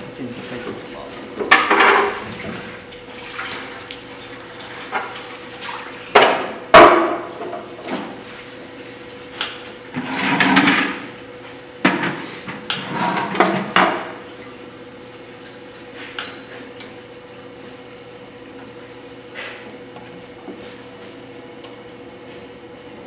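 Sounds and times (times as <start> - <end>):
tool scraping clay on potter's wheel: 9.9 - 11.0, 12.0 - 13.8.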